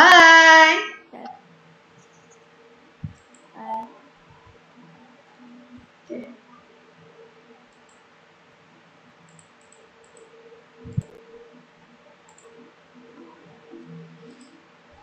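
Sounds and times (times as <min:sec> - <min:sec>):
faint steady hum: 0:00.0 - 0:15.0
computer mouse clicking: 0:03.1 - 0:03.9, 0:07.7 - 0:08.1, 0:09.2 - 0:11.2, 0:12.2 - 0:12.6.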